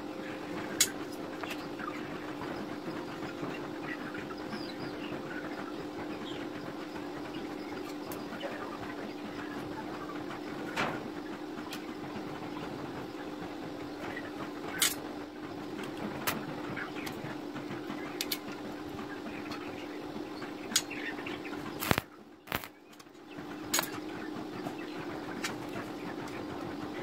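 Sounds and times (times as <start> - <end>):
steady low hum: 0.0 - 27.0
welding arc cracks: 21.8 - 22.7.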